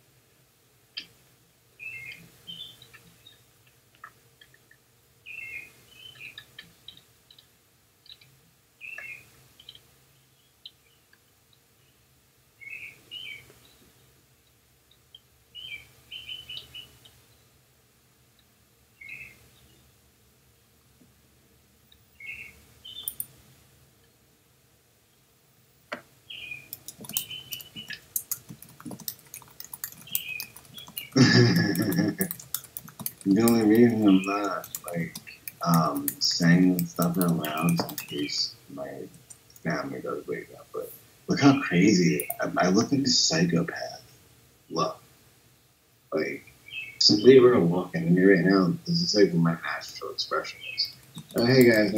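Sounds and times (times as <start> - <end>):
computer keyboard typing: 23.0 - 23.3, 26.6 - 38.3, 39.0 - 39.8, 42.1 - 42.4, 50.9 - 51.9
light clicks: 23.0 - 23.3.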